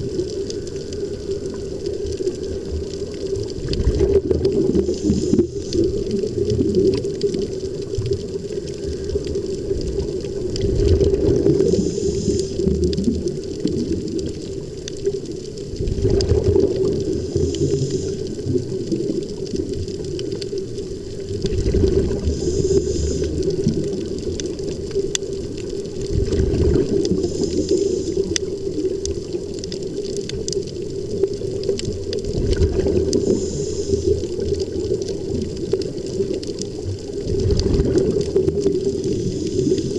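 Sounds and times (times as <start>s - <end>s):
underwater air bubbling: 0.0s - 39.9s
high hiss: 4.9s - 6.0s, 11.6s - 12.7s, 17.1s - 18.4s, 22.1s - 23.8s, 27.1s - 28.4s, 33.2s - 34.2s, 39.0s - 39.9s.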